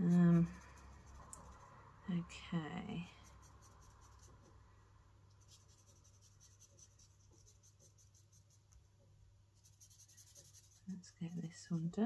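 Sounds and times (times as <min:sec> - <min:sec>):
low room hum: 0:00.0 - 0:12.0
marker scratching on card: 0:03.2 - 0:04.4, 0:05.4 - 0:08.7, 0:09.6 - 0:11.4.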